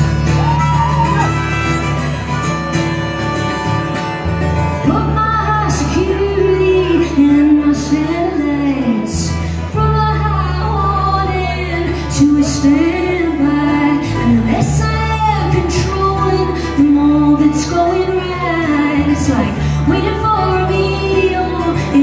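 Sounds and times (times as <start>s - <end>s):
electric bass: 0.0s - 22.0s
strummed acoustic guitar: 0.0s - 22.0s
woman singing: 4.8s - 22.0s.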